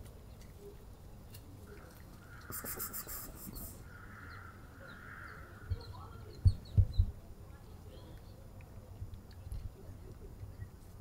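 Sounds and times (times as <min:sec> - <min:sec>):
drawn-out bird calls: 0:01.7 - 0:06.7
quick high pulses: 0:02.5 - 0:03.8.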